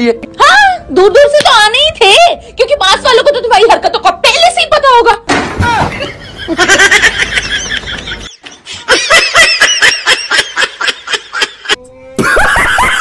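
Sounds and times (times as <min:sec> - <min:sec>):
man laughing heartily: 0:06.0 - 0:13.0.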